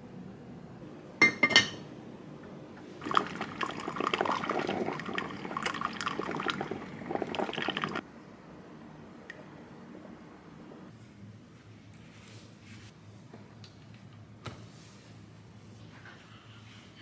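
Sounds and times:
coffee pouring into cup: 0:03.0 - 0:08.0.

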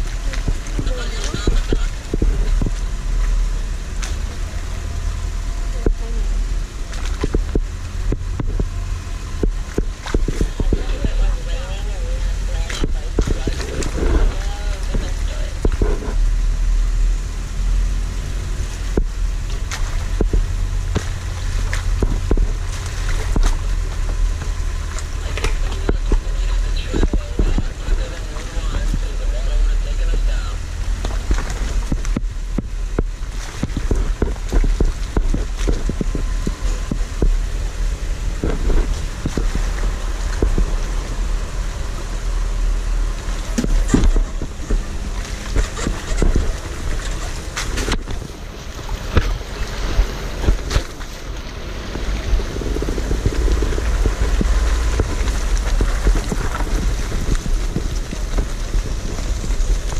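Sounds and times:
tyres churning through water: 0:00.0 - 0:59.9
vehicle engine rumble: 0:00.0 - 0:59.9
wind buffeting microphone: 0:00.0 - 0:59.9
tyres crunching over rocks: 0:30.8 - 0:42.2, 0:42.9 - 0:59.9.

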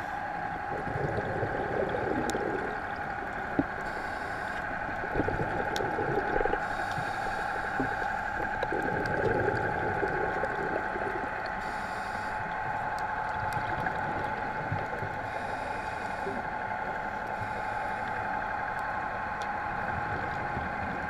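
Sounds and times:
steady hum: 0:00.0 - 0:21.0
underwater bubbles gurgling: 0:00.1 - 0:21.0.

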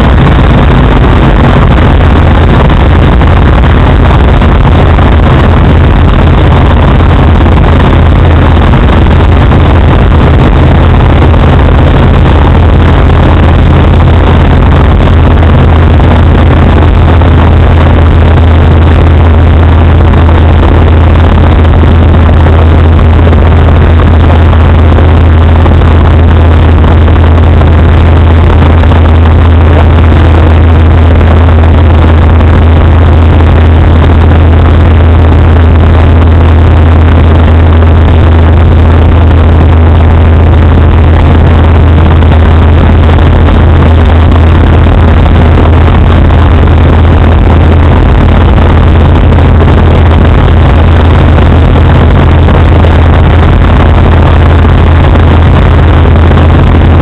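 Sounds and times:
microlight engine and propeller drone: 0:00.0 - 0:57.0
rush of air: 0:00.0 - 0:57.0.

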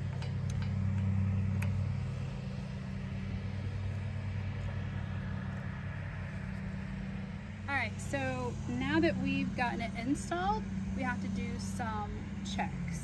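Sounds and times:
engine idling hum: 0:00.0 - 0:13.0.

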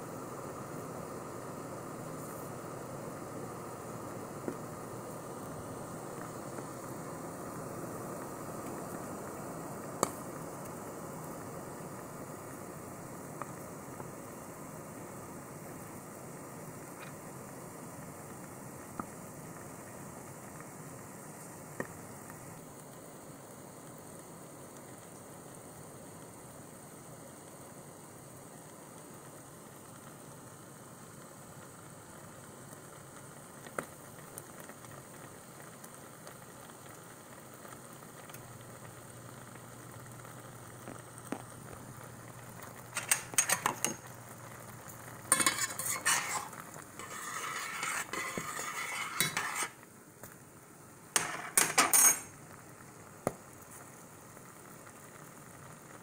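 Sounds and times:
berries bubbling and sizzling: 0:00.0 - 0:56.0
utensil scraping metal pot: 0:42.9 - 0:44.1, 0:45.1 - 0:49.8, 0:51.2 - 0:52.3.

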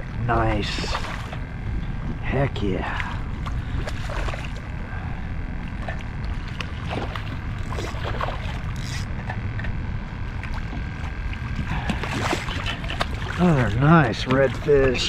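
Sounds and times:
fish splashing at water surface: 0:05.8 - 0:08.8, 0:10.4 - 0:15.0.

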